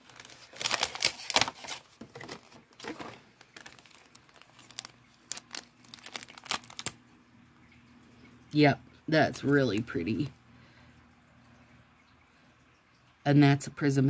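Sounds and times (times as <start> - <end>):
plastic packets crinkling: 0.0 - 7.0.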